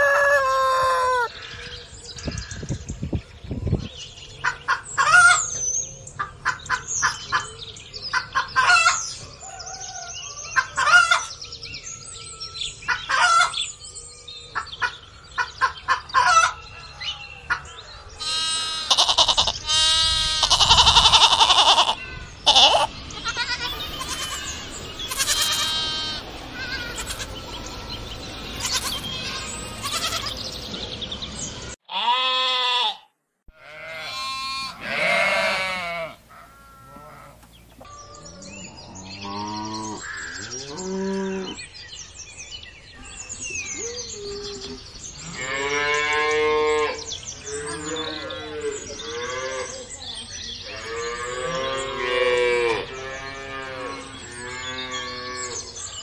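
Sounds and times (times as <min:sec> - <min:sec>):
sheep and lambs bleating: 0:18.2 - 0:27.6, 0:28.6 - 0:30.5, 0:31.9 - 0:37.5, 0:45.2 - 0:49.8, 0:50.7 - 0:55.6.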